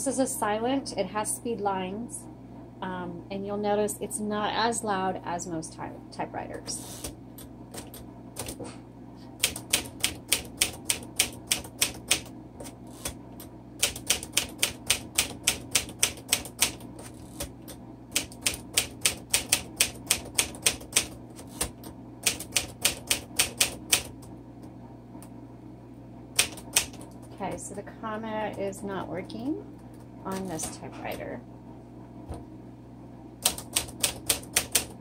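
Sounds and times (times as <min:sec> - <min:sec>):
manual typewriter keystrokes: 0:07.7 - 0:08.6, 0:09.4 - 0:13.2, 0:13.8 - 0:24.3, 0:26.4 - 0:27.3, 0:33.4 - 0:35.0.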